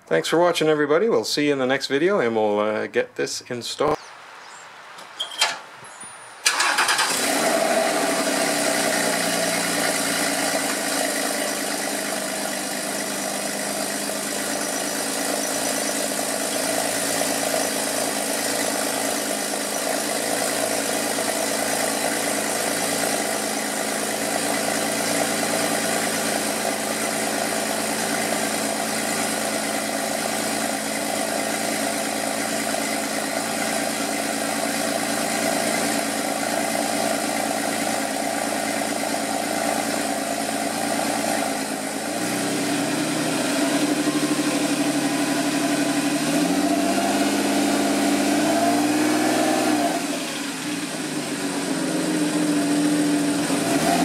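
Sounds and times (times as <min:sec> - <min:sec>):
car engine idling: 0:06.4 - 0:49.2, 0:50.0 - 0:53.8.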